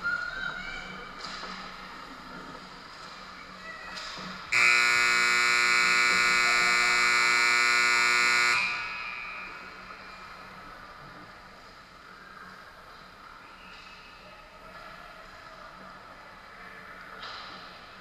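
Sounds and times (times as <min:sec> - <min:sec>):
arena buzzer tone: 0:04.6 - 0:10.0.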